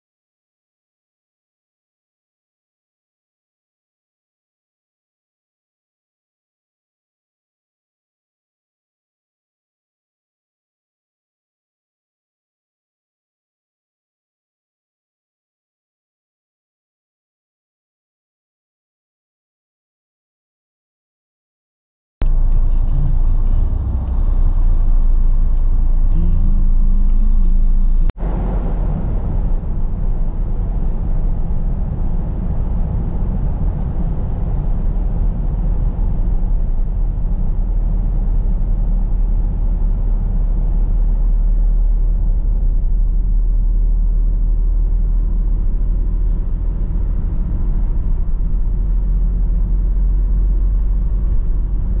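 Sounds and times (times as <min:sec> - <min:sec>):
road and engine rumble in vehicle: 0:22.2 - 0:52.0.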